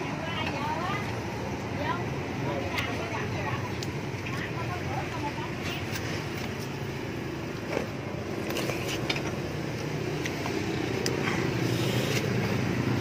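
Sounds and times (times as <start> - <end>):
road traffic rumble: 0.0 - 13.0
plastic spoon scraping cup: 11.5 - 12.4.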